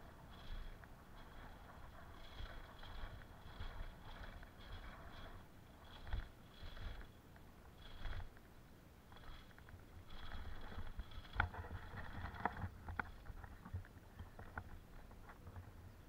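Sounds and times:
bicycle rolling over paving slabs: 0.0s - 8.4s
bike rattling over slabs: 0.0s - 8.4s, 9.1s - 14.6s.

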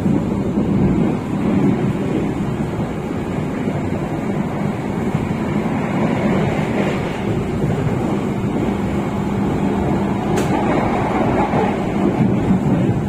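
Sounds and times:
passenger train rumbling: 0.0s - 13.0s
brief click: 10.3s - 10.6s.

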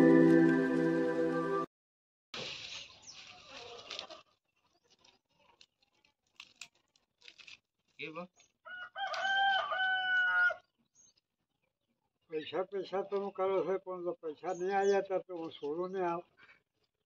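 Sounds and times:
dry garlic rustling and crackling: 2.4s - 8.0s
rooster crowing: 8.7s - 10.6s.

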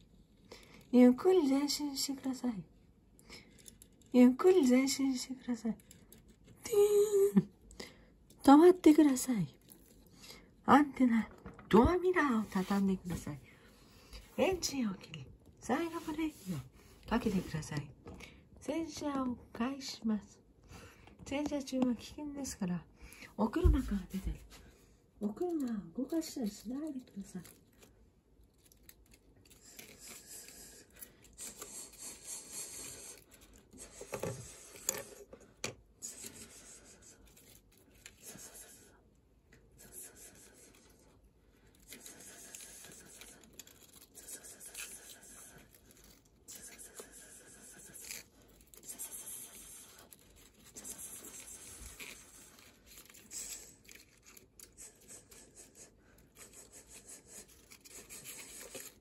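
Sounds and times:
paper brushes scraping toy car: 41.8s - 59.0s.

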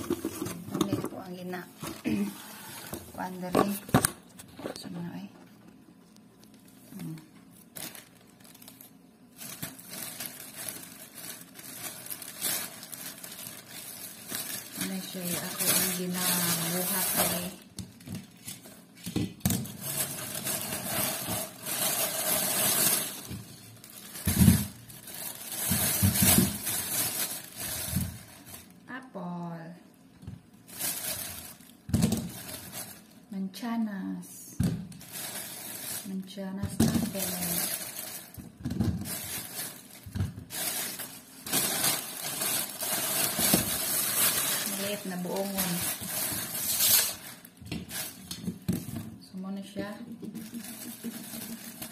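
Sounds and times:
plastic bags rustling: 0.0s - 4.9s, 6.3s - 28.9s, 30.6s - 33.3s, 34.6s - 49.2s, 50.2s - 51.9s.

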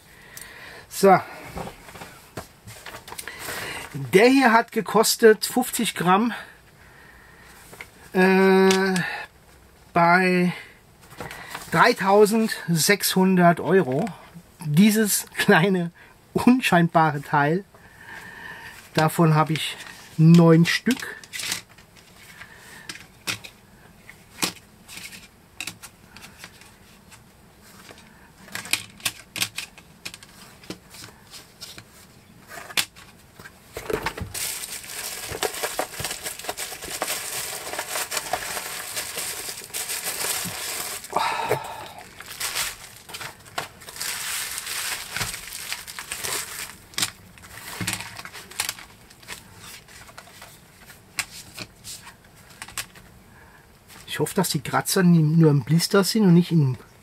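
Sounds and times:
plastic blister packs clicking: 33.8s - 41.2s, 42.0s - 49.4s
bubble wrap crinkling: 33.8s - 50.5s.

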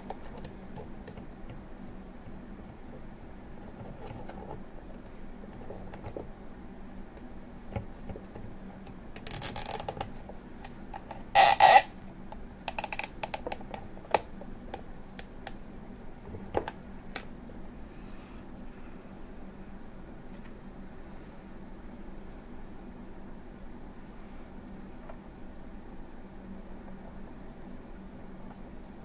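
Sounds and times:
zip tie sharp rasps: 11.4s - 11.9s.

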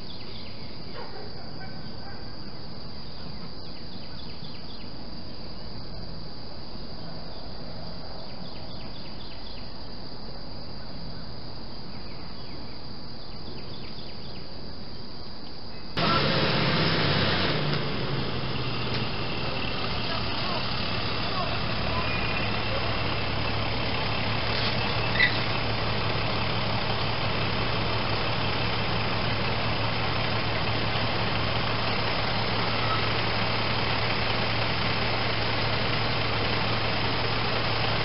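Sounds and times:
insects chirping: 0.0s - 38.0s
outdoor hiss: 9.0s - 38.0s
vehicle noise: 16.0s - 38.0s.

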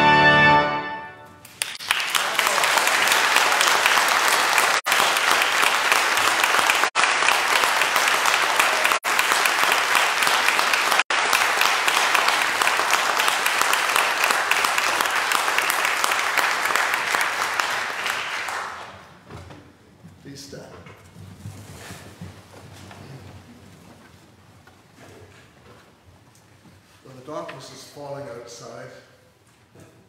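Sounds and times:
audience applauding: 1.4s - 19.1s.

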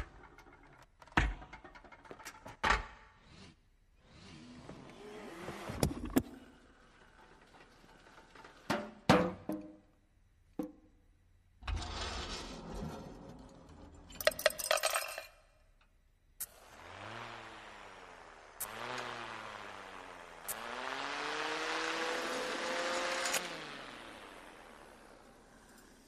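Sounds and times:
parts rolling and sliding: 0.0s - 9.8s, 11.6s - 15.4s
wavering whirr: 3.1s - 8.5s, 16.4s - 26.0s.

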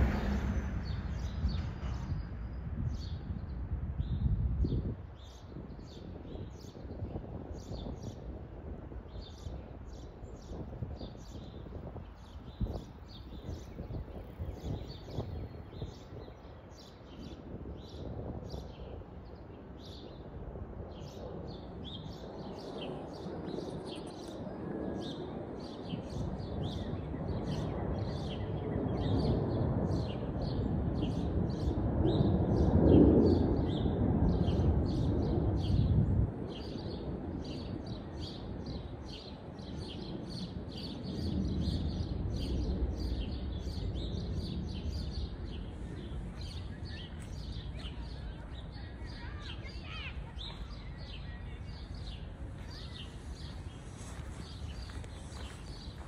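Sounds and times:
low rumble: 0.0s - 4.8s
small birds chirping: 0.0s - 8.4s, 9.1s - 56.0s.

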